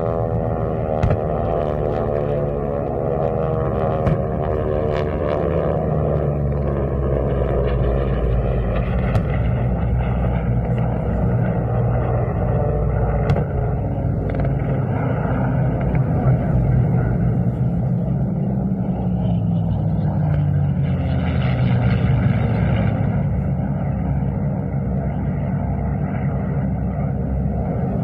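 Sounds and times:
deep steady rumble: 0:00.0 - 0:28.0
piston aircraft engine passing: 0:00.0 - 0:28.0
pyrotechnic explosion bangs: 0:01.0 - 0:01.5, 0:09.0 - 0:09.7, 0:13.2 - 0:13.8.

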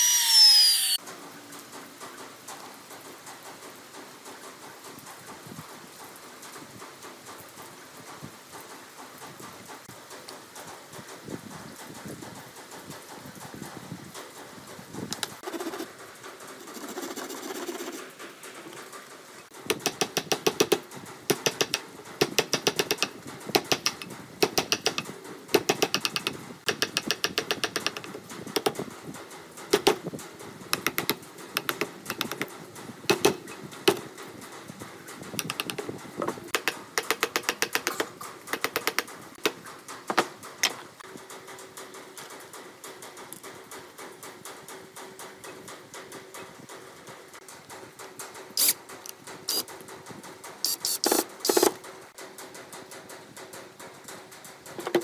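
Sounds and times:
wooden mallet tapping chisel: 0:19.7 - 0:25.0, 0:25.6 - 0:28.8, 0:30.8 - 0:32.5, 0:36.5 - 0:40.2.

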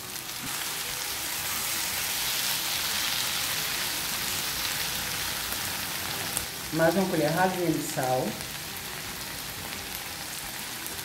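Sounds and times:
tomatoes sizzling in a frying pan: 0:00.0 - 0:11.0.

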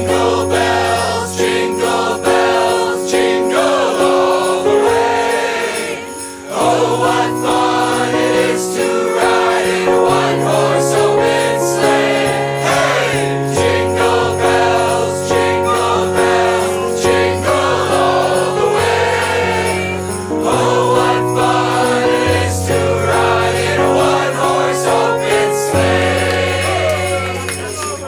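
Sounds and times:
group singing a carol: 0:00.0 - 0:28.0
jingle bells shaken: 0:00.0 - 0:28.0
piano: 0:00.0 - 0:28.0.

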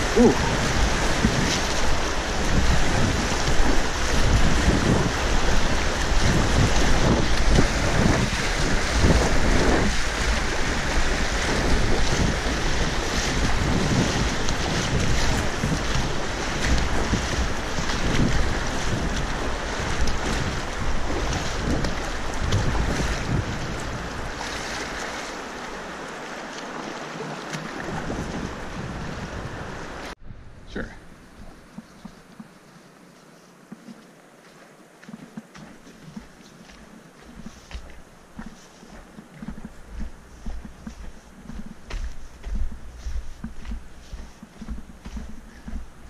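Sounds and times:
wind buffeting microphone: 0:00.0 - 0:26.8, 0:27.4 - 0:32.1, 0:39.3 - 0:46.0
river rapids rushing and splashing: 0:00.0 - 0:30.2.

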